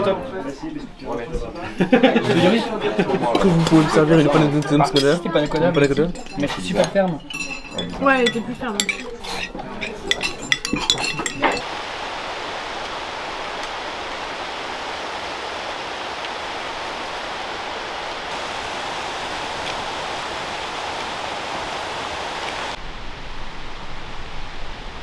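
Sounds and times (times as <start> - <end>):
cutlery and dishes clinking: 3.2 - 11.6
mountain stream rushing: 10.3 - 25.0.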